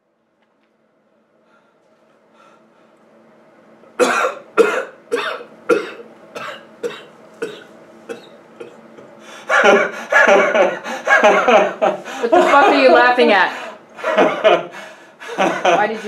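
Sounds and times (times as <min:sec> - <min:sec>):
man coughing harshly: 0:04.0 - 0:08.8, 0:09.5 - 0:11.8
man laughing: 0:09.5 - 0:13.1, 0:14.0 - 0:16.0.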